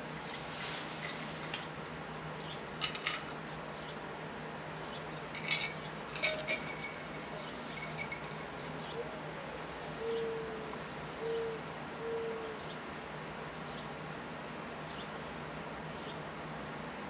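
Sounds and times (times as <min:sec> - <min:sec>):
sparrows chirping: 0:02.3 - 0:02.8, 0:03.4 - 0:06.1, 0:06.7 - 0:16.4.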